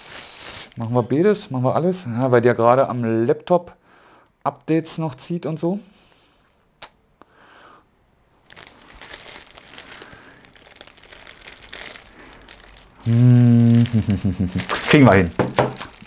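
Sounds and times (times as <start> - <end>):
plastic bag crinkling: 8.4 - 16.0
man's voice holding a note: 13.0 - 15.4.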